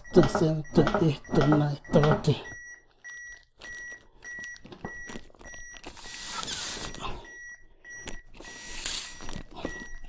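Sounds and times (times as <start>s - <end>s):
breath blown through face shield: 6.0s - 7.2s.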